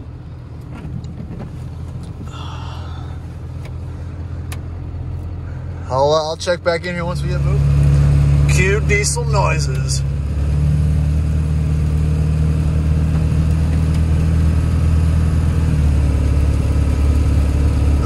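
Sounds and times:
diesel engine running: 0:00.0 - 0:18.0.

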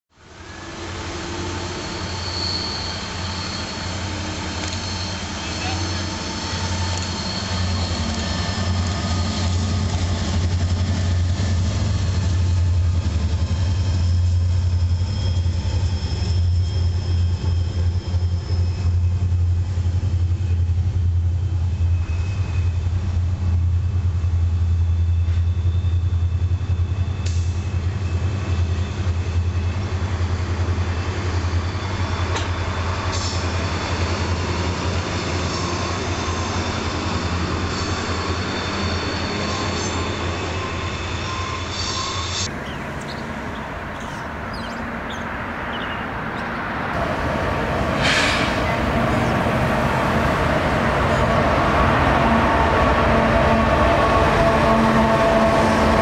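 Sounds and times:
freight train rumbling past: 0:00.2 - 0:56.0
sharp wheel squeaks: 0:01.8 - 0:09.6, 0:13.5 - 0:19.2, 0:35.8 - 0:46.6.

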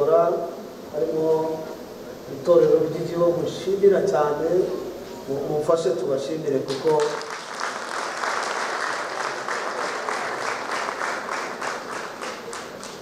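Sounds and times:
audience applauding: 0:06.7 - 0:13.0.

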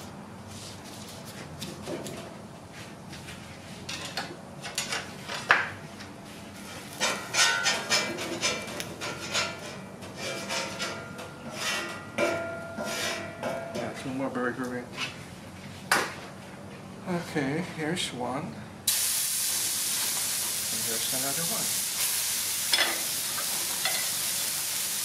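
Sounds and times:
metal spatula scraping a griddle: 0:06.6 - 0:13.5.

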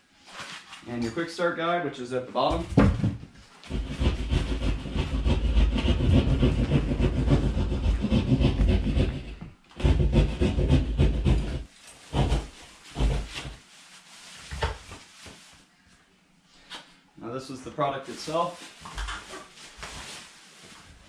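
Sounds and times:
plastic bags rustling: 0:11.7 - 0:15.7, 0:18.0 - 0:21.0.

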